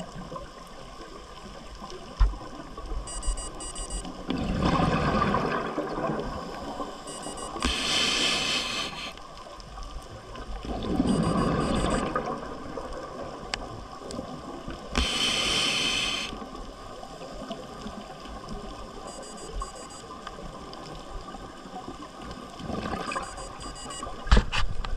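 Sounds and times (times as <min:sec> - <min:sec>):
exhaled bubbles gurgling: 0:04.2 - 0:06.8, 0:10.1 - 0:14.7, 0:21.7 - 0:23.9
regulator hissing inhale: 0:07.5 - 0:09.3, 0:15.0 - 0:16.5.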